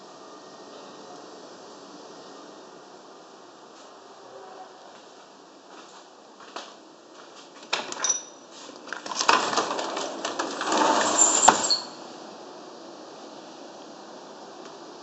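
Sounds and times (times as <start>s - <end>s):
sliding door rattling and scraping: 8.8s - 12.0s
door track squeaks: 9.1s - 12.0s.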